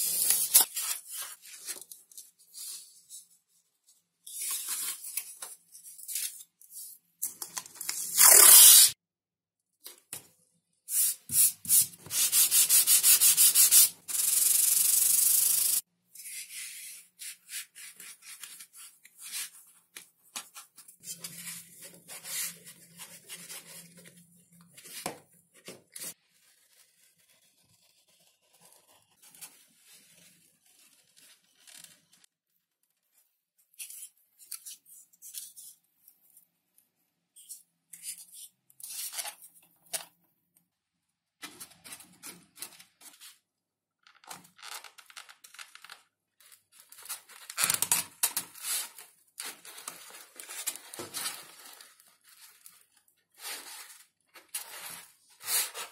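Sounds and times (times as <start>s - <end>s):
foam tearing and rubbing: 8.1s - 9.0s.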